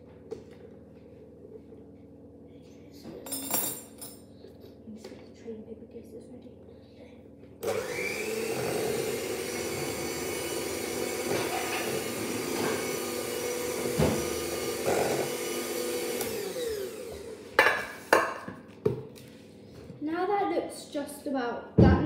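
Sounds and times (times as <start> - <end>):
electric hand mixer running: 7.6 - 18.1.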